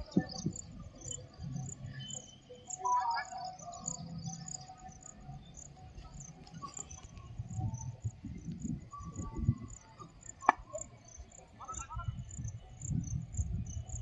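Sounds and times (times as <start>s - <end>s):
wind rumbling on microphone: 0.0s - 1.9s, 6.0s - 14.0s
insects chirping: 0.0s - 14.0s.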